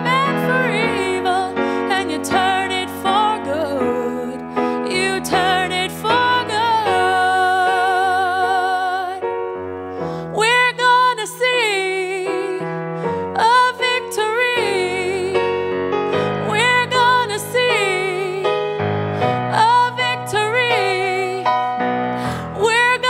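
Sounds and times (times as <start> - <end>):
woman singing with vibrato: 0.0 - 9.2, 10.3 - 15.6, 16.2 - 21.6, 22.2 - 23.0
electric piano chords: 0.0 - 23.0.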